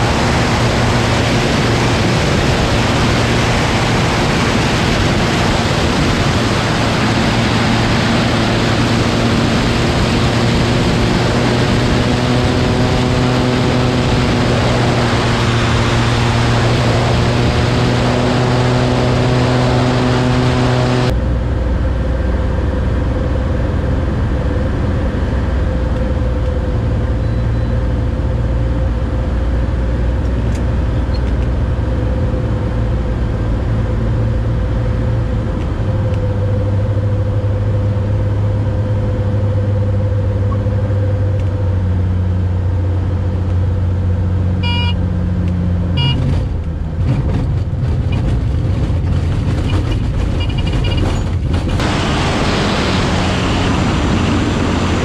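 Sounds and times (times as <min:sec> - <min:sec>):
wind rush: 0:00.0 - 0:23.0, 0:46.5 - 0:55.0
aircraft engine and propeller drone: 0:00.0 - 0:55.0.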